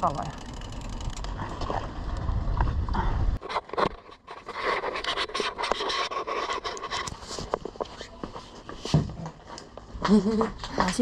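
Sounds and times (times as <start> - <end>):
wind rumble on microphone: 1.1 - 3.4.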